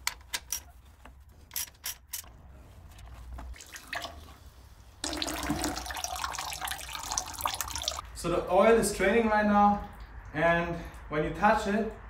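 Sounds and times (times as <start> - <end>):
oil pouring into bucket: 3.5 - 8.0
oil trickling: 3.5 - 8.0.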